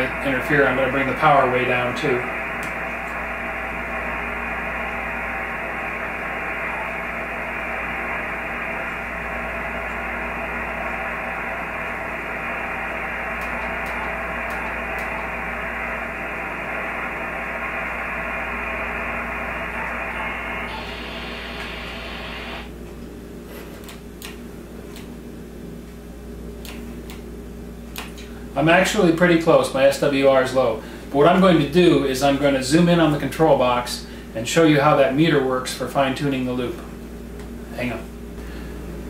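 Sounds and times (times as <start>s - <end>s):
shortwave radio static hiss: 0.0s - 22.7s.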